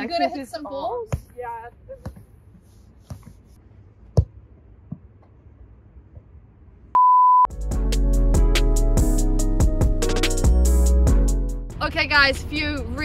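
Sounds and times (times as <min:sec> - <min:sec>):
censor bleep: 0:07.0 - 0:07.5
music with drum beat: 0:07.5 - 0:11.6.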